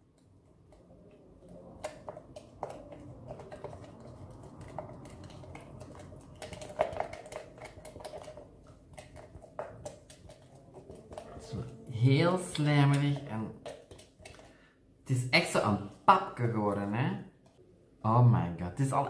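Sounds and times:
slime stirring taps on plastic pot: 0.0 - 14.6.

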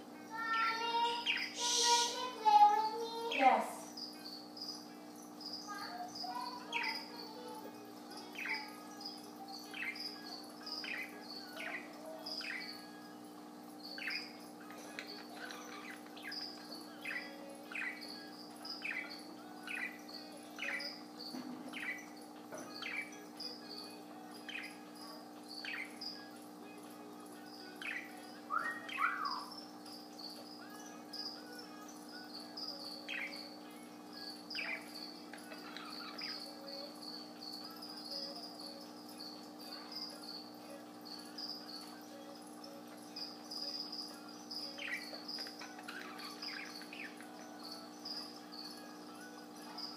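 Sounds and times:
budgerigar chirping: 1.0 - 2.3, 8.3 - 13.1, 13.8 - 26.2, 27.8 - 30.4, 32.3 - 33.6, 34.2 - 37.0, 43.2 - 49.1.

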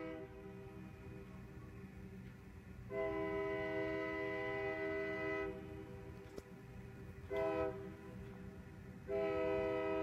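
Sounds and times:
train horn blasts: 0.0 - 1.2, 2.8 - 6.3, 7.2 - 8.2, 9.0 - 10.0.

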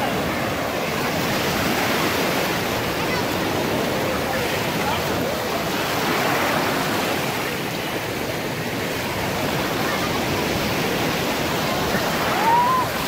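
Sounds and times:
small waves washing on sand: 0.0 - 13.0
rising cry: 12.2 - 13.0.

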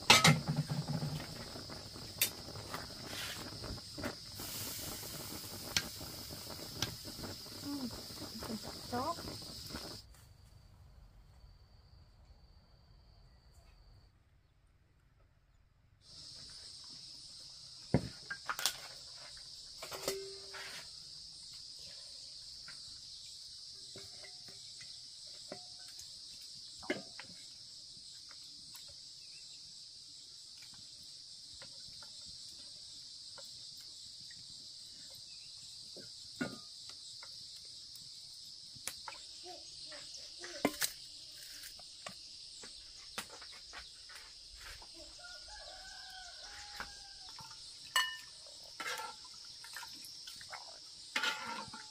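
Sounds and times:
metal pots clinking: 0.0 - 1.4, 19.8 - 20.5, 47.4 - 49.4, 51.1 - 51.9
high-pitched insect chorus: 0.0 - 10.0, 16.0 - 51.9.

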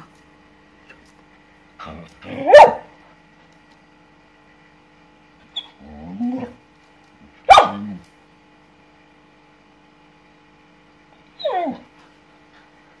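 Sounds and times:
dog whining: 1.8 - 2.8, 5.5 - 6.6, 11.4 - 11.9
dog crying out: 2.3 - 2.8, 11.4 - 11.8.

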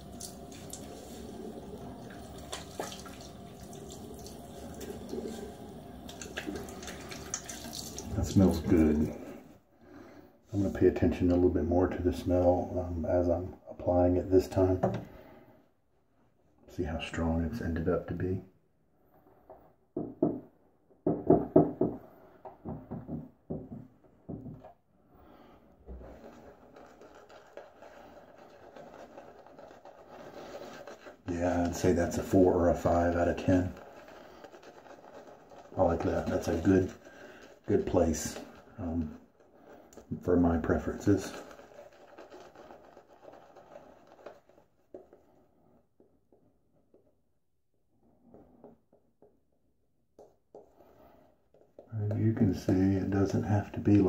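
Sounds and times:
water drips: 0.0 - 8.7
shaving brush rubbing: 0.0 - 8.9, 25.9 - 45.5
water splashing in sink: 0.0 - 9.4, 25.3 - 43.0.

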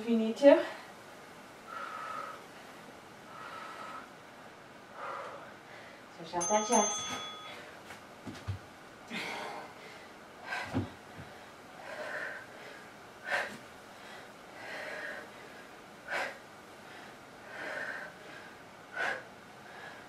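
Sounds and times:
woman breathing hard: 1.6 - 4.2, 4.9 - 6.1, 9.1 - 20.0.

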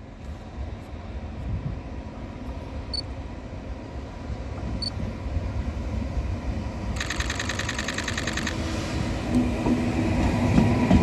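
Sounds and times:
train rumbling: 0.0 - 11.0
high rapidly pulsing tones: 7.0 - 8.6
short high beeps: 7.0 - 8.6.

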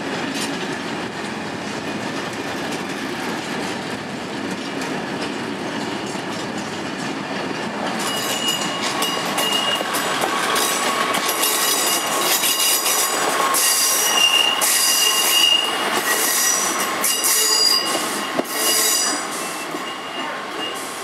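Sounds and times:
rail rumble: 0.0 - 19.9
train wheels squealing: 8.0 - 21.0.

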